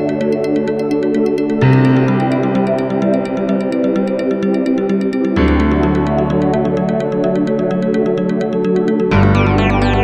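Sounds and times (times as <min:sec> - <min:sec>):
electronic synthesizer music: 0:09.1 - 0:10.0.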